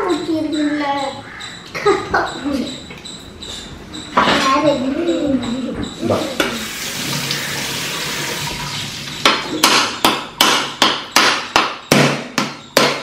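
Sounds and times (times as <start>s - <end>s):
sharp evenly spaced knocks: 9.1s - 13.0s.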